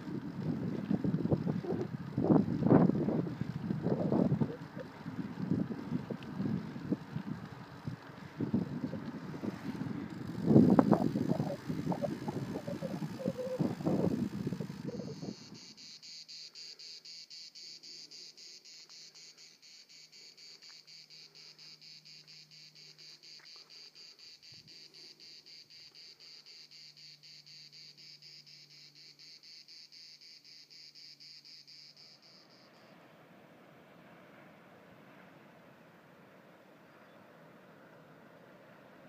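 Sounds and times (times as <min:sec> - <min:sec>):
wind noise from riding: 0:00.0 - 0:15.8
insect trilling: 0:00.0 - 0:33.0.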